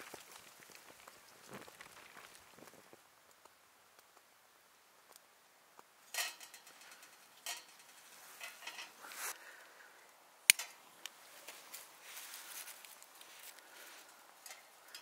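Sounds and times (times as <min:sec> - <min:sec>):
metallic scrapes and clinks: 0:06.1 - 0:09.4.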